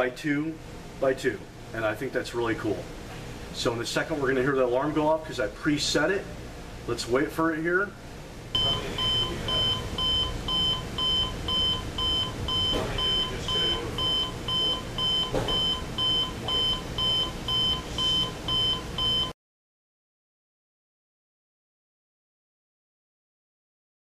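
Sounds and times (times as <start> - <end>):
alarm clock short electronic beeps: 8.6 - 19.3.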